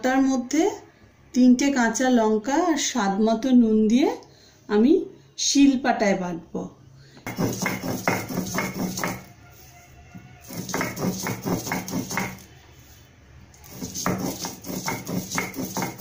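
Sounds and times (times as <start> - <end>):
stone roller grinding on slab: 7.3 - 9.3, 10.4 - 12.5, 13.6 - 16.0.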